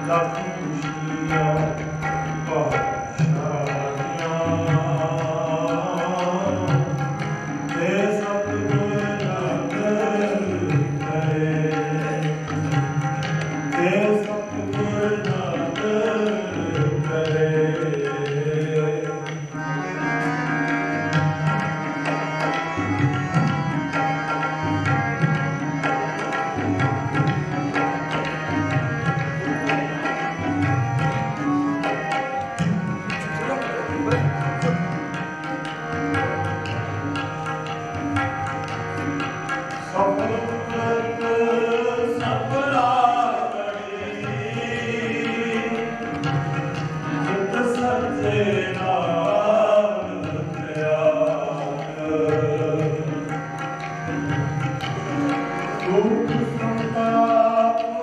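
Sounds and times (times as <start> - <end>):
man singing: 0.0 - 6.9, 7.7 - 12.4, 13.7 - 19.3, 39.8 - 46.0, 47.1 - 53.2, 55.9 - 58.0
harmonium chords: 0.0 - 58.0
tabla strokes: 0.0 - 58.0.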